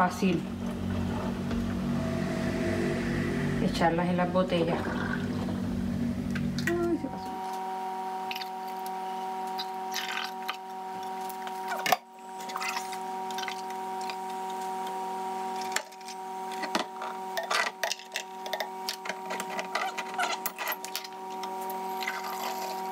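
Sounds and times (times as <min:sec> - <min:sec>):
steady hum: 0:00.0 - 0:08.8.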